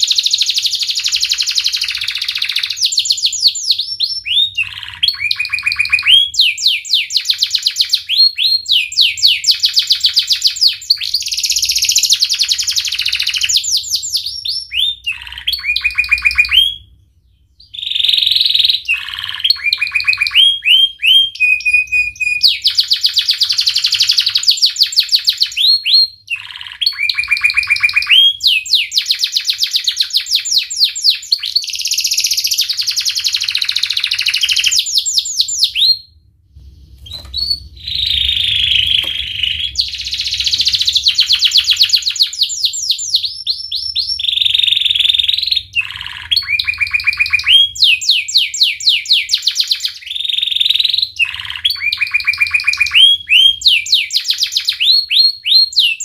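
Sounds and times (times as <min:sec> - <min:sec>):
canary singing trills: 0:00.0 - 0:36.2, 0:37.0 - 0:56.0.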